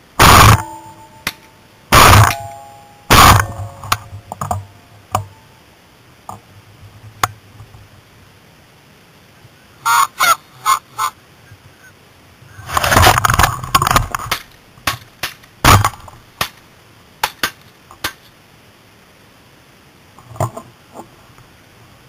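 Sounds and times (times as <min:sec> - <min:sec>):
shotgun blasts: 0:00.2 - 0:04.2, 0:14.3 - 0:16.6
geese honking: 0:09.8 - 0:12.7.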